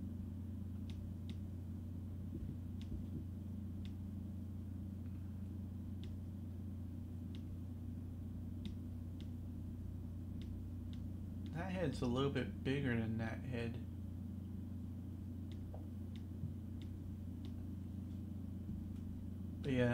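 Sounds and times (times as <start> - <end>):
steady low hum: 0.0 - 19.9
computer mouse clicks: 6.0 - 6.2, 8.6 - 9.4.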